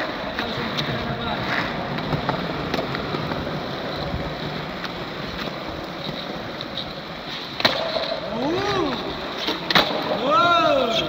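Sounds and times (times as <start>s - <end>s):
light skateboard clicks: 0.0s - 10.2s
skateboard wheels rolling on concrete: 0.0s - 11.0s.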